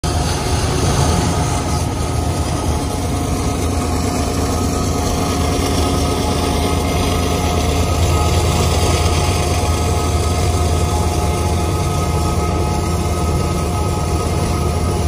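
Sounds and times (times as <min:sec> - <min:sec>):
locomotive engine drone: 0:00.0 - 0:15.0
faint steady whine: 0:00.1 - 0:15.0.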